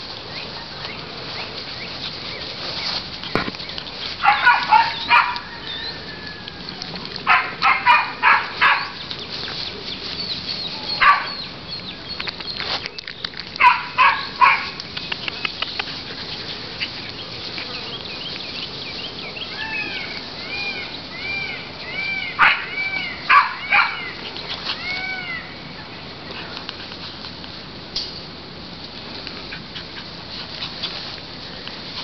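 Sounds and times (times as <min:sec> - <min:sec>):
puppies yipping: 0:01.4 - 0:18.5, 0:19.1 - 0:25.8.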